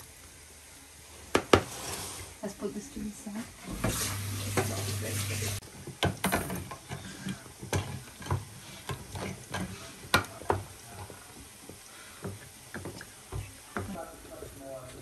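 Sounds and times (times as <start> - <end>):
utensils knocking against dishes: 5.9 - 10.7.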